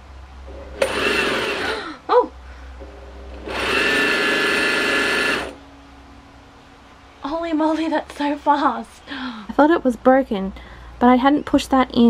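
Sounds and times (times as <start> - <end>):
sewing machine motor winding: 0.8 - 1.8, 3.4 - 5.6.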